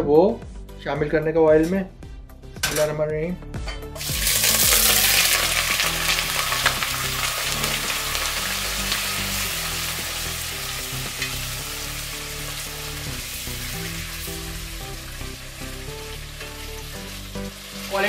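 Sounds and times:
beef sizzling in hot oil: 0:04.0 - 0:18.0.

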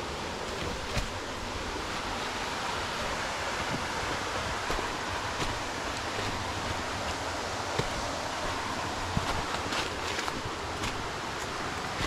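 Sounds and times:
flowing water rushing: 0:00.0 - 0:12.0.

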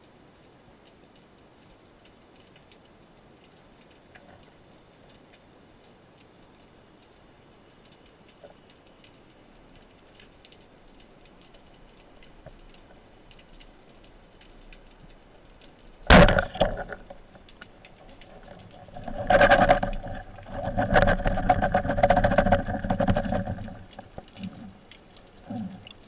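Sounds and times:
faint ticks: 0:00.0 - 0:16.1, 0:16.7 - 0:26.0
speargun firing crack: 0:16.1 - 0:16.8.

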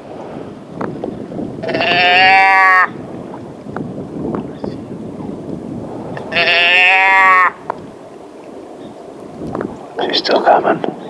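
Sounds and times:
deer bleats: 0:01.6 - 0:03.0, 0:06.2 - 0:07.7.

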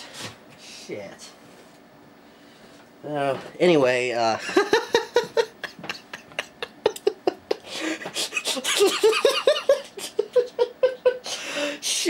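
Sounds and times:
man laughing: 0:04.4 - 0:11.8.

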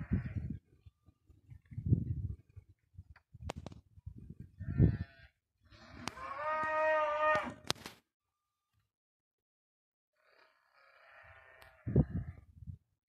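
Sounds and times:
cow mooing: 0:05.7 - 0:07.6.

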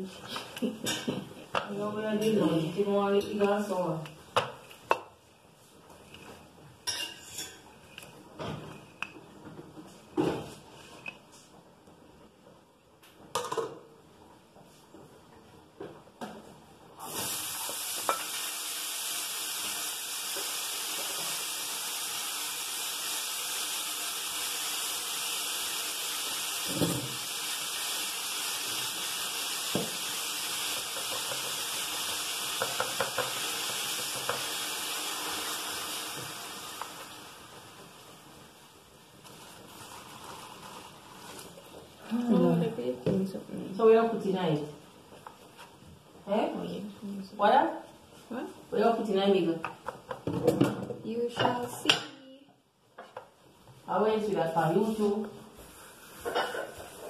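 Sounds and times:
kitchen knocks and clinks: 0:00.8 - 0:01.7
steady hiss: 0:17.0 - 0:42.3.

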